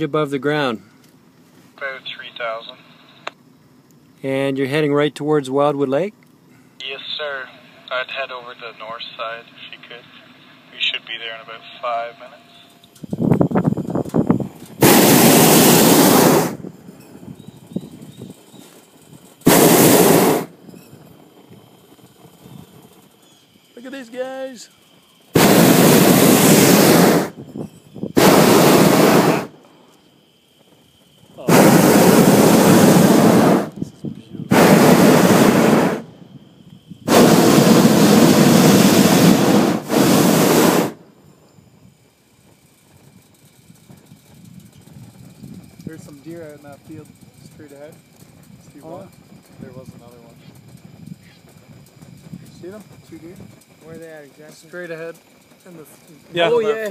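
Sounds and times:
propane burner blasts: 0:00.0 - 0:56.9.

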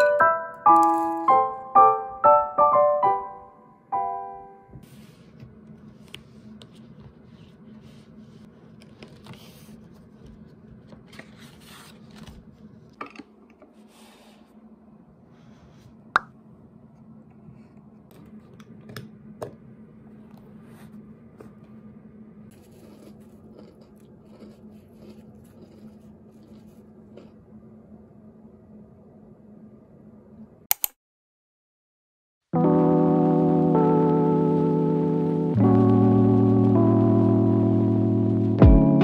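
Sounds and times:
piano notes: 0:00.0 - 0:04.8, 0:32.6 - 0:39.0
low steady hum: 0:03.4 - 0:30.7
sharp click: 0:30.7 - 0:31.0.

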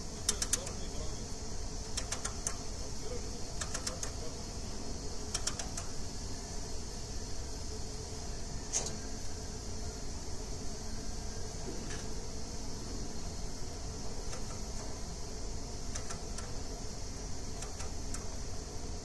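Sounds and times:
steady hiss: 0:00.0 - 0:19.0
quick mechanical clicks: 0:00.2 - 0:00.9, 0:01.9 - 0:02.6, 0:03.6 - 0:04.2, 0:05.3 - 0:06.0, 0:14.2 - 0:14.9, 0:15.9 - 0:16.6, 0:17.5 - 0:18.4.

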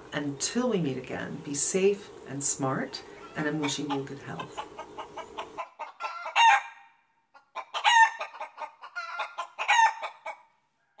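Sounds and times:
birds calling: 0:01.8 - 0:06.8.

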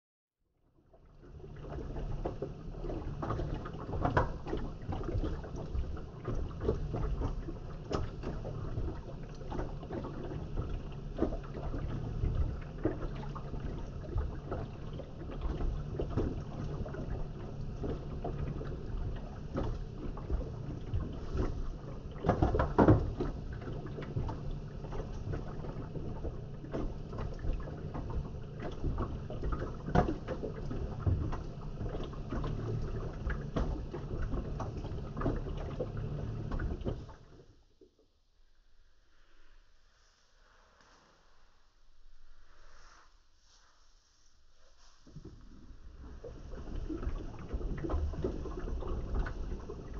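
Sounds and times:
water sloshing: 0:01.3 - 0:38.0, 0:42.2 - 0:49.9
laundry knocking and clattering: 0:22.2 - 0:23.4.

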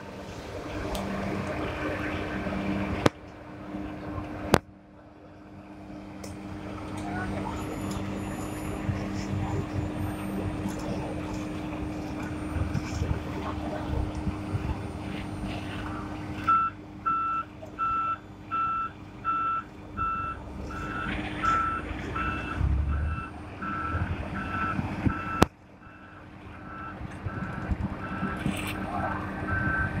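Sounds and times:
diesel engine running: 0:00.0 - 0:30.0
reversing alarm beeping: 0:16.0 - 0:28.4, 0:29.5 - 0:30.0.

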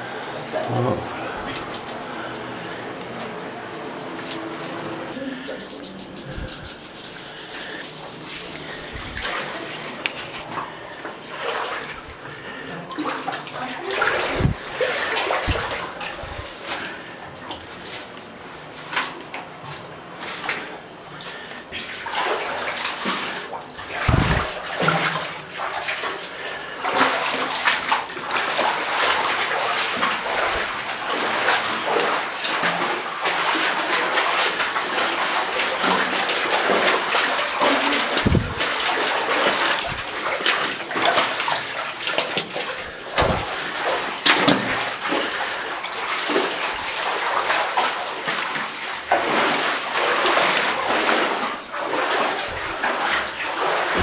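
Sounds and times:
feet splashing through water: 0:04.1 - 0:54.0
dull thumps: 0:24.0 - 0:24.5, 0:43.2 - 0:43.6.

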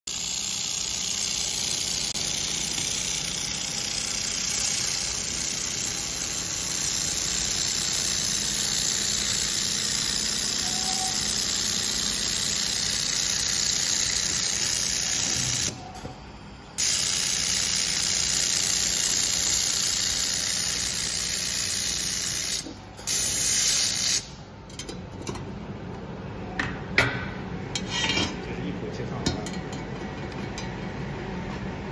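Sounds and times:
laser welding head hissing: 0:00.1 - 0:15.8, 0:16.8 - 0:24.4.

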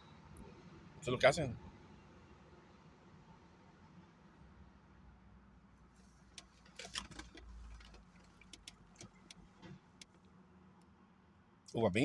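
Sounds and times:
faint clicks and taps: 0:06.3 - 0:10.3.

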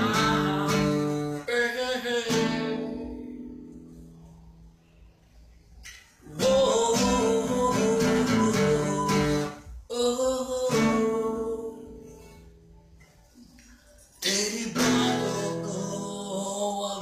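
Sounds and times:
guitar chords strummed: 0:00.0 - 0:04.4, 0:06.2 - 0:12.8, 0:14.2 - 0:17.0.

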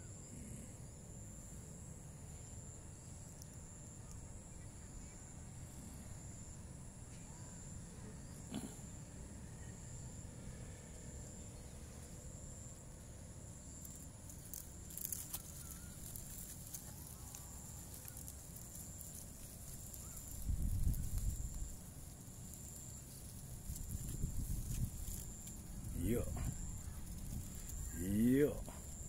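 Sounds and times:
insects trilling: 0:00.0 - 0:29.0
crackling rustles: 0:11.6 - 0:29.0
low microphone rumble: 0:23.6 - 0:29.0.

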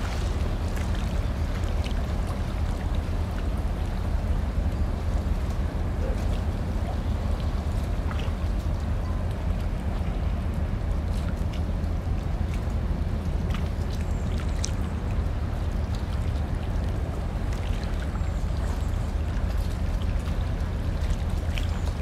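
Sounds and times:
rushing water-like noise: 0:00.0 - 0:22.0
ship low rumble: 0:00.0 - 0:22.0.

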